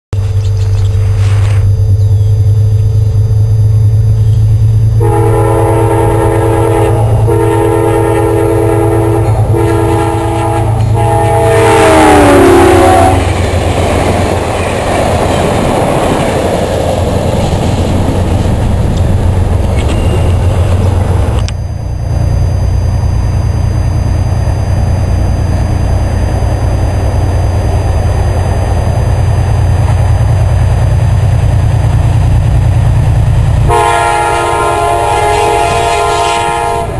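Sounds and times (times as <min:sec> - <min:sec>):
train cars rumbling and clattering: 0:00.2 - 0:36.9
train horn blasts: 0:05.0 - 0:13.4, 0:33.6 - 0:36.9.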